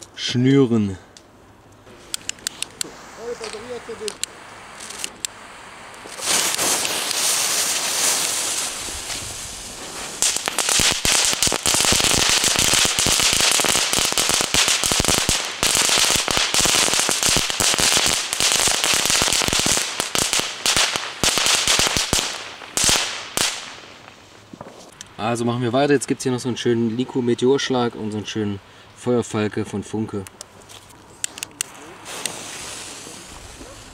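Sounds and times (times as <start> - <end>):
fireworks crackling pops: 1.1 - 25.3, 30.2 - 33.9
fireworks sparks hissing: 1.8 - 25.2, 30.7 - 33.9.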